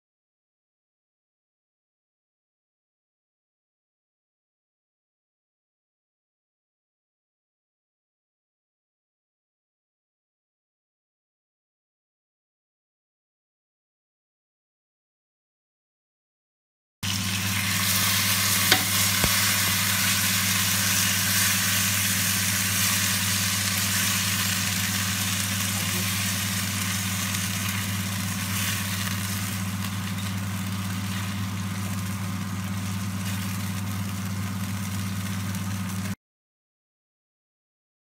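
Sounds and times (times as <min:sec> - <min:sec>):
soup sizzling: 0:17.0 - 0:36.2
low hum: 0:17.1 - 0:36.2.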